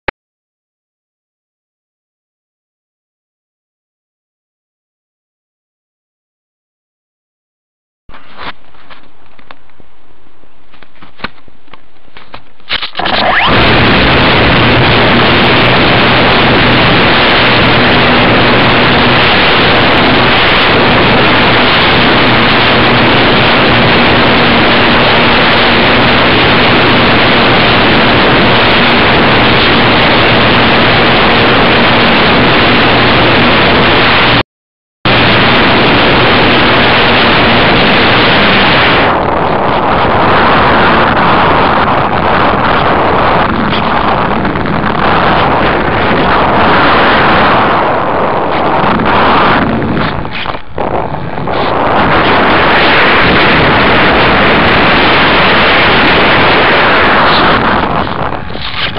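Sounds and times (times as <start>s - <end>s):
low motor hum: 8.1s - 34.4s, 35.1s - 58.9s
wind and propeller noise: 8.1s - 34.4s, 35.1s - 58.9s.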